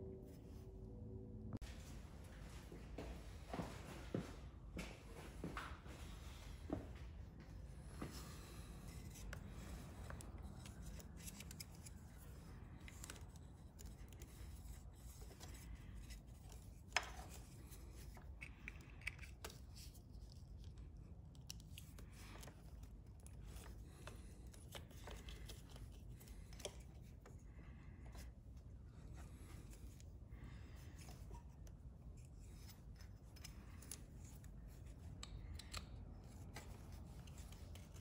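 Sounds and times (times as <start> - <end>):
low steady rumble: 0.0 - 3.5
plastic connectors clicking: 33.4 - 37.7.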